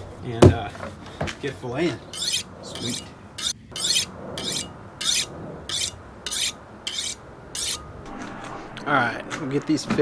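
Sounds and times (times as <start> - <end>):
knife scraping on honing rod: 2.0 - 7.9.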